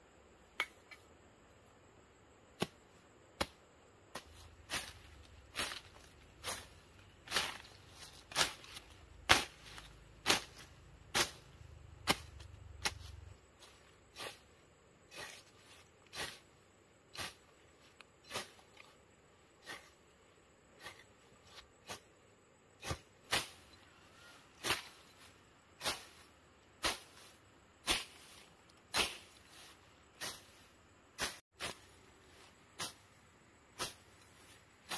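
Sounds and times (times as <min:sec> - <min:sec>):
machete slashing through grass: 0:04.2 - 0:14.4, 0:15.1 - 0:16.4, 0:17.1 - 0:17.5, 0:18.2 - 0:18.9, 0:22.8 - 0:23.8, 0:24.6 - 0:33.0, 0:33.8 - 0:34.9.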